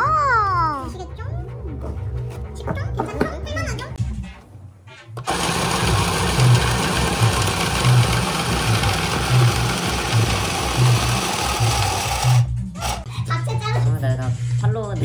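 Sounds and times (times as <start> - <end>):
playing cards feeding through rollers: 5.2 - 13.0
card shuffler motor whirring: 5.2 - 13.1.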